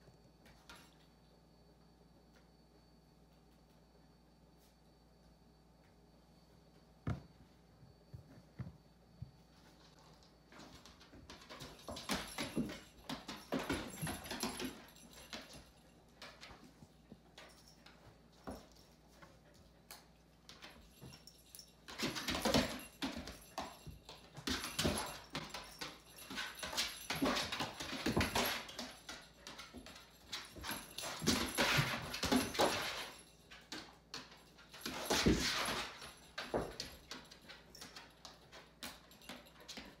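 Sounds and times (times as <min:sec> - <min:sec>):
paws scrabbling on hard floor: 0:08.0 - 0:40.0.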